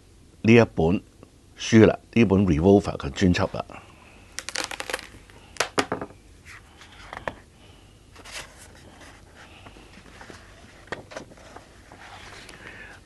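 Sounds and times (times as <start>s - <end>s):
book pages turning: 4.3s - 5.8s, 8.2s - 12.6s.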